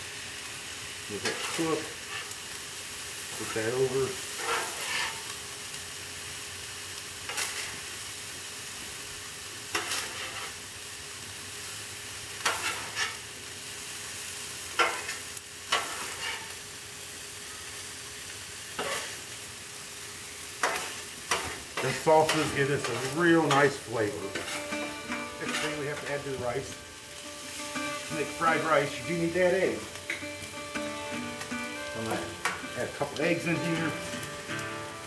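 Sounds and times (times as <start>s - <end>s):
rice sizzling on a griddle: 0.0s - 35.0s
metal spatulas scraping griddle: 1.2s - 2.4s, 4.4s - 5.3s, 7.3s - 7.8s, 9.7s - 10.6s, 12.4s - 13.2s, 14.8s - 16.6s, 18.8s - 19.2s, 20.6s - 26.4s.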